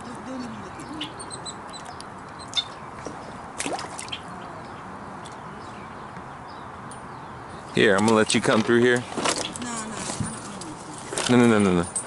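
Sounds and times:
water dripping and lapping: 0:00.0 - 0:05.6.

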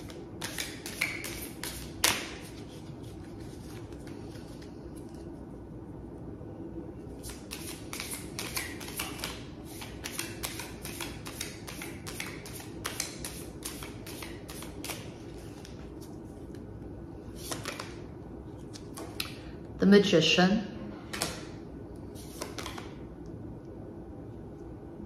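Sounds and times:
cards being shuffled: 0:00.0 - 0:05.2, 0:07.2 - 0:16.6, 0:17.4 - 0:18.0, 0:22.1 - 0:23.0.

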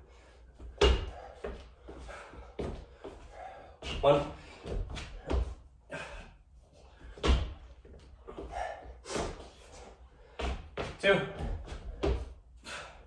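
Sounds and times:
body-weight thuds on floor: 0:07.1 - 0:07.6.

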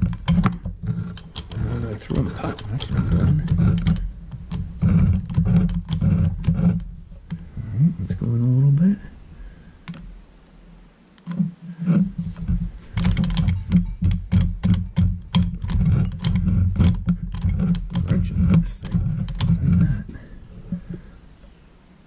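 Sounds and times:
metallic clicks and scrapes: 0:00.0 - 0:07.5, 0:11.2 - 0:21.0
low machine rumble: 0:00.0 - 0:10.4.

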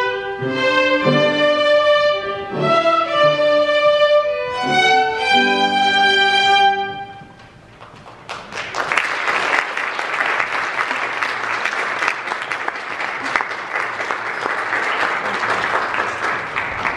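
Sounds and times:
audience applause: 0:07.8 - 0:16.9.

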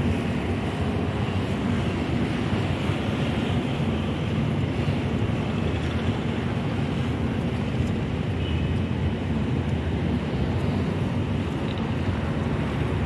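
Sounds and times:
harbourside noise: 0:00.0 - 0:13.0
wind buffeting microphone: 0:00.0 - 0:13.0.

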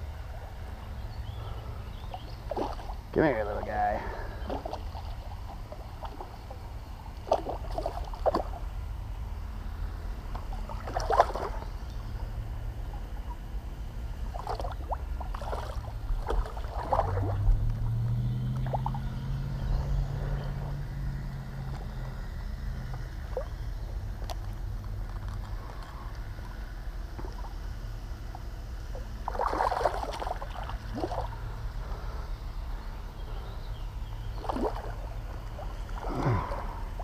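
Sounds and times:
low engine drone: 0:00.0 - 0:37.0
steady low rumble: 0:00.0 - 0:37.0
splashes and knocks in water: 0:02.5 - 0:03.0, 0:04.4 - 0:06.4, 0:07.2 - 0:08.6, 0:10.3 - 0:11.7, 0:14.3 - 0:17.6, 0:29.2 - 0:31.3, 0:34.4 - 0:36.6.

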